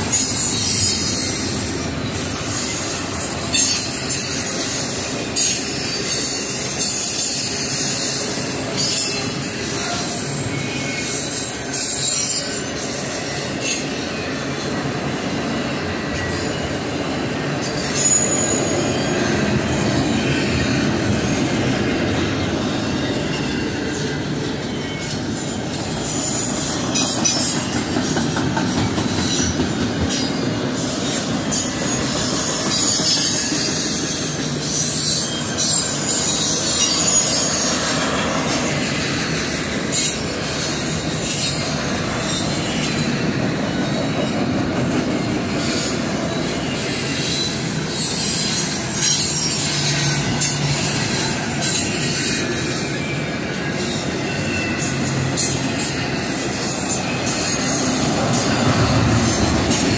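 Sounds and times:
train wheel clacks: 0.0s - 10.5s, 11.1s - 59.9s
freight train wheels rumbling: 0.0s - 59.9s
high-pitched wheel squeal: 17.6s - 19.4s, 29.0s - 44.4s, 45.5s - 59.9s.

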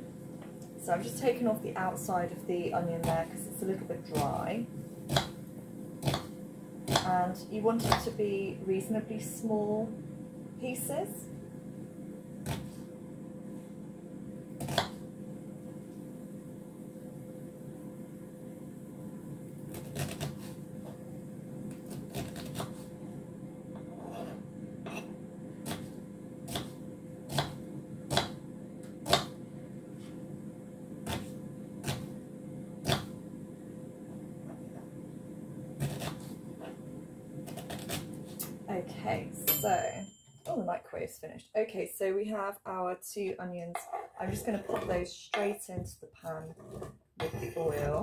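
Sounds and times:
microwave oven humming: 0.0s - 40.8s
knife chopping on wooden board: 5.1s - 5.4s, 6.0s - 7.1s, 12.4s - 12.8s, 14.6s - 15.0s, 25.6s - 25.9s, 26.5s - 28.4s, 29.0s - 29.3s, 32.8s - 33.1s, 35.8s - 36.8s.

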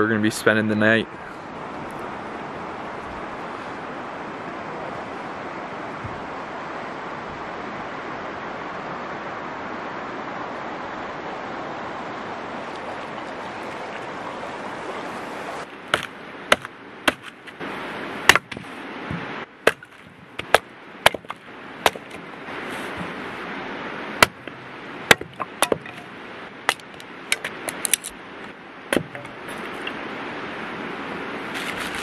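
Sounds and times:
river rushing over stones: 0.1s - 32.0s
hatchet splitting firewood: 15.9s - 17.6s, 18.2s - 23.3s, 24.1s - 30.0s.

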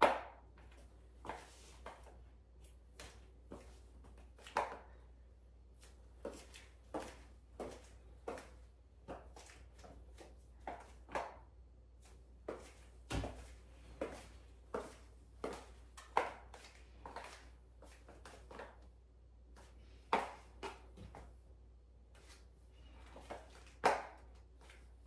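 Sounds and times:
high heels clicking on tile: 14.0s - 18.9s.

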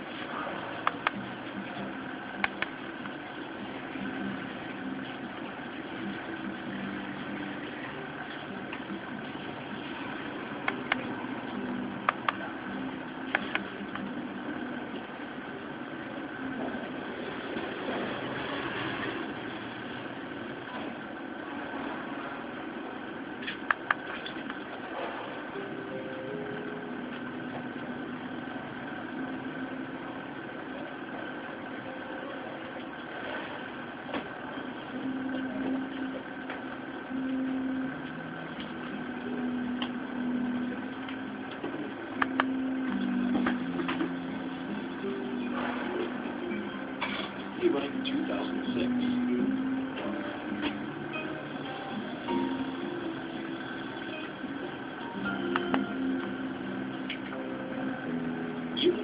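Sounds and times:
stepper motor humming and whining: 0.0s - 58.8s.

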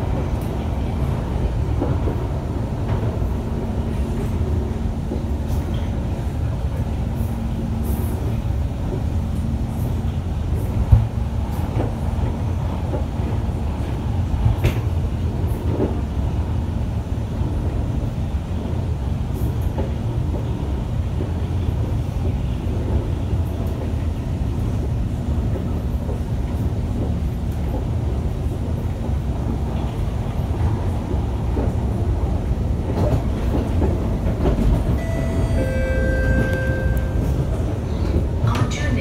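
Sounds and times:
train wheels rumbling on rail: 0.0s - 39.0s
steady tones: 35.0s - 37.9s.

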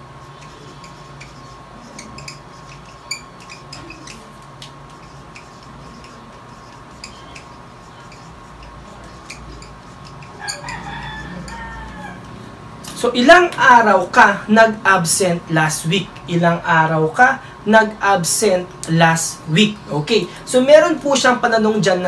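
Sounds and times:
marker pen squeaking on paper: 0.2s - 12.5s
rooster crowing: 10.3s - 12.6s.

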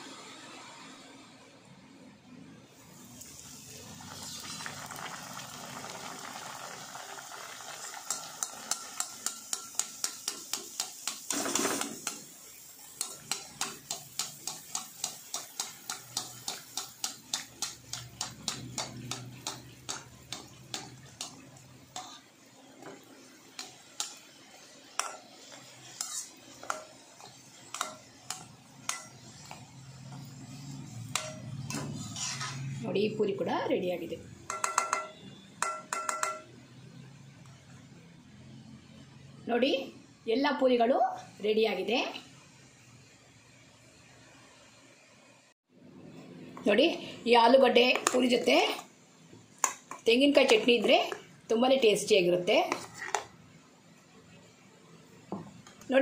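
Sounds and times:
hot oil sizzling: 2.7s - 37.8s, 41.3s - 56.0s
skimmer tapping against pan: 8.1s - 11.3s, 34.5s - 36.5s.

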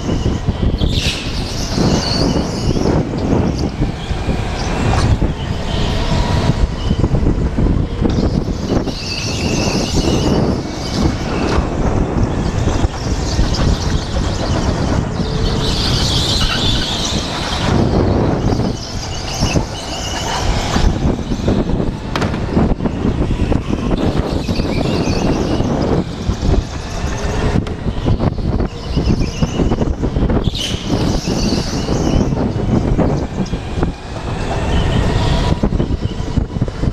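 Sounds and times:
rushing wind and running noise: 0.0s - 36.9s
kart tyres squealing: 12.3s - 21.3s.

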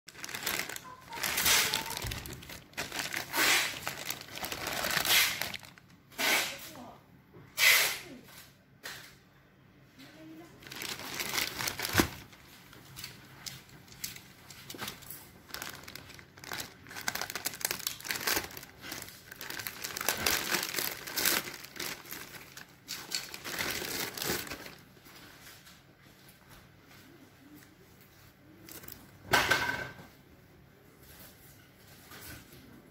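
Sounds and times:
plastic bag crinkling: 0.1s - 6.0s, 10.4s - 25.5s, 28.6s - 29.2s.

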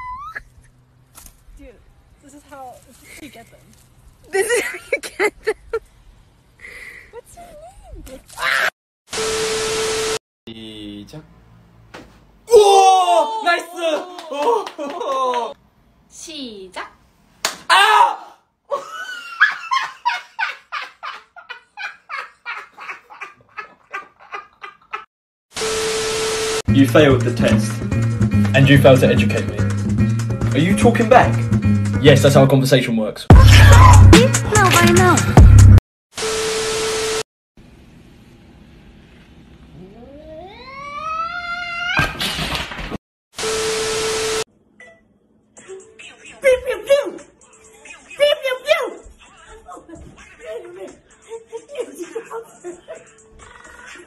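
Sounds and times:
loud cry: 12.5s - 15.6s, 17.7s - 18.5s, 33.3s - 34.2s
people laughing: 13.9s - 15.6s, 18.7s - 25.1s, 49.3s - 54.0s
tv static burst: 25.6s - 26.7s
cat yowling: 39.7s - 42.2s.

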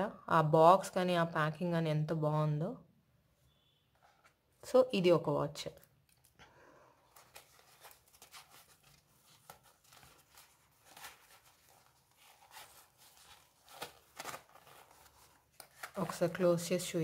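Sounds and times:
soft rustling: 7.1s - 16.5s.

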